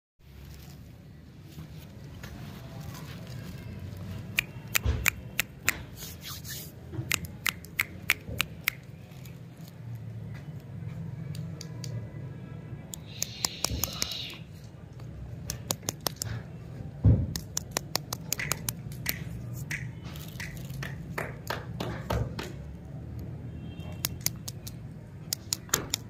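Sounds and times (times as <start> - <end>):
sharp clicks and taps of wrappers: 4.2 - 6.1, 7.0 - 10.7, 11.3 - 12.0, 12.9 - 14.2, 14.9 - 16.5, 17.2 - 22.6, 23.9 - 26.0.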